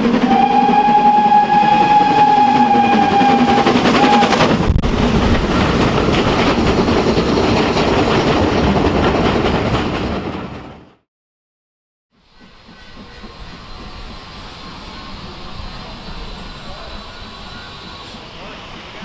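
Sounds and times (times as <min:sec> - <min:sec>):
steam locomotive whistle: 0:00.0 - 0:04.5, 0:12.2 - 0:19.0
steam train passing: 0:00.0 - 0:10.9, 0:12.2 - 0:19.0.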